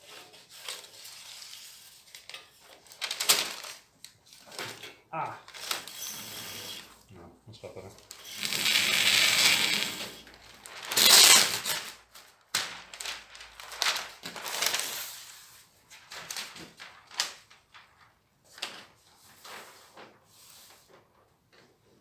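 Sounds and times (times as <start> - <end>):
paper crinkling: 0.1 - 4.8, 5.4 - 6.2, 7.9 - 21.2
paper pulled and torn: 9.5 - 12.0.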